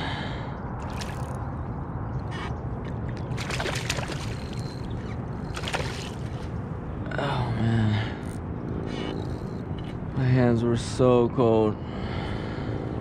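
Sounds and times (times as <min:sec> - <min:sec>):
water sloshing and splashing: 0:00.8 - 0:06.8.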